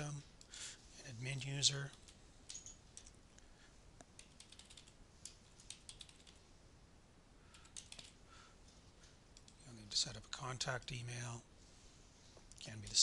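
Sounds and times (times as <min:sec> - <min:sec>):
keyboard typing: 0:04.2 - 0:06.4, 0:07.5 - 0:08.2.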